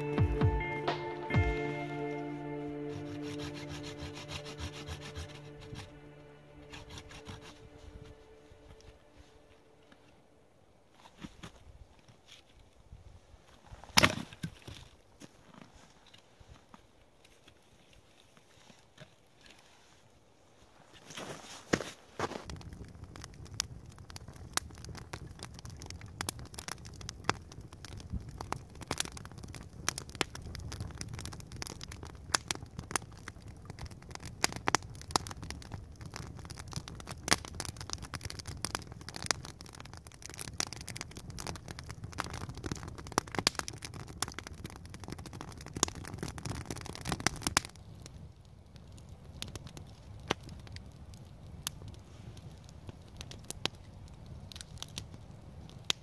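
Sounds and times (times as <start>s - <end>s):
campfire crackling and popping: 0.0s - 10.1s, 21.7s - 56.0s.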